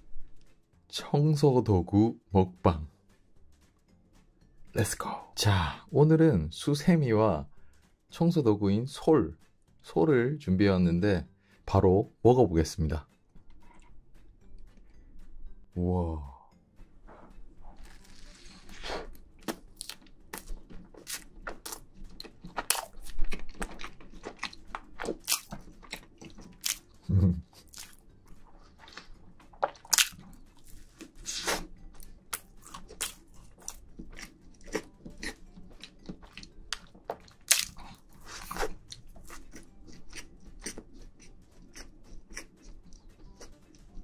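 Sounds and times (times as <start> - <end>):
biting and chewing cake: 17.7 - 44.0.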